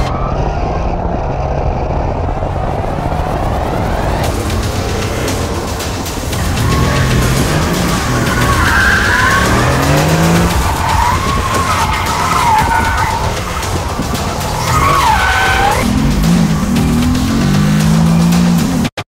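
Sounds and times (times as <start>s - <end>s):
car engine under hard throttle: 0.0s - 19.0s
tyres squealing: 6.2s - 16.4s.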